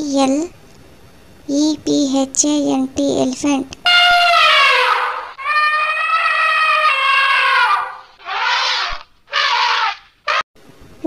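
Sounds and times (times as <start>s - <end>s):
elephant trumpeting: 3.9s - 10.4s.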